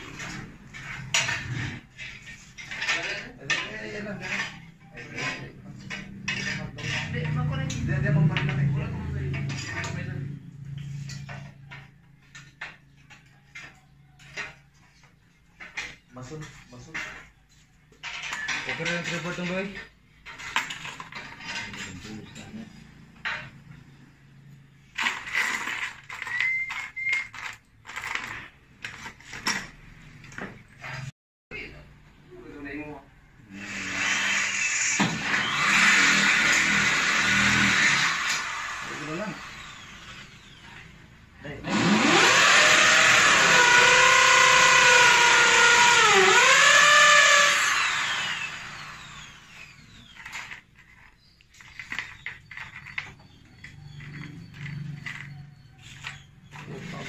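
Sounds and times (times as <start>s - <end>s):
metal scraping and clinking: 0.0s - 31.1s, 48.7s - 57.0s
brief high squeak: 26.2s - 27.4s
electric power drill running: 33.6s - 40.6s, 41.7s - 50.4s.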